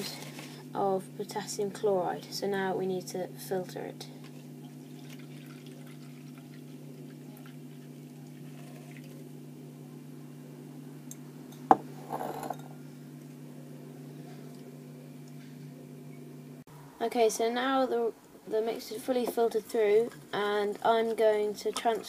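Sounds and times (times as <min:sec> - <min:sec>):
steady low hum: 0:00.0 - 0:22.0
glass beaker clinking on table: 0:11.6 - 0:12.7
glass scraping on wood: 0:11.7 - 0:12.7.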